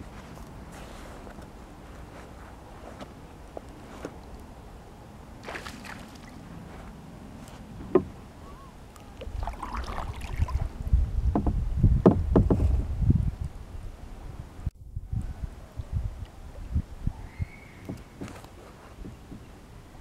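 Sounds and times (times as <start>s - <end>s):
water moving around boat: 0.0s - 12.8s, 15.8s - 20.0s
low thudding and rumbling: 10.5s - 13.4s
knocks on kayak hull: 11.3s - 12.7s.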